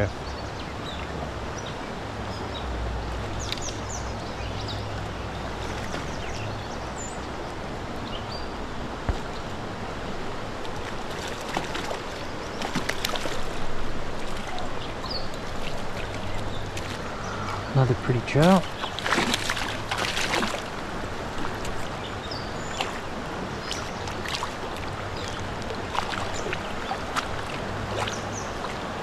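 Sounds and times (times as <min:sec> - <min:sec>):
creek water running: 0:00.0 - 0:29.0
water splashing: 0:09.0 - 0:29.0.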